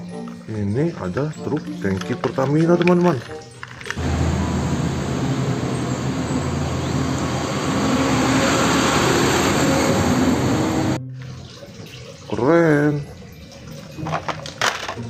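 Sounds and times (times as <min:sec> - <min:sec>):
diesel truck engine running: 0:04.0 - 0:11.0
road noise: 0:04.0 - 0:11.0.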